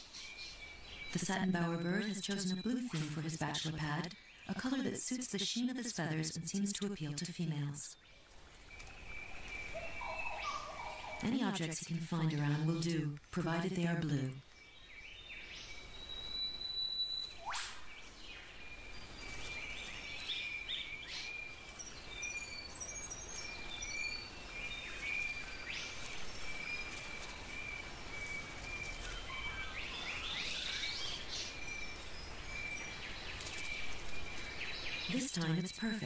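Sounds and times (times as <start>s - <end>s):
bird chirps: 0.0s - 36.0s
rising bird whistle: 16.2s - 18.0s.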